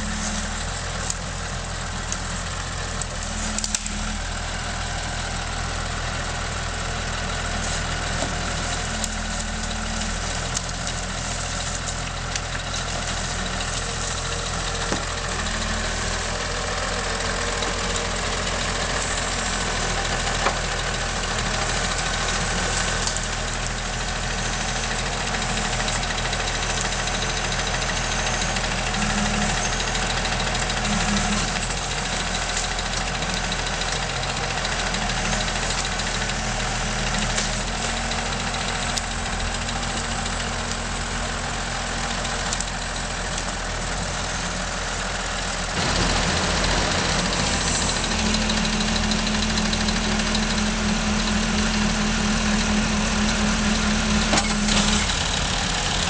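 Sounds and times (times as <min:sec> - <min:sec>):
tractor diesel engine running: 0:00.0 - 0:56.0.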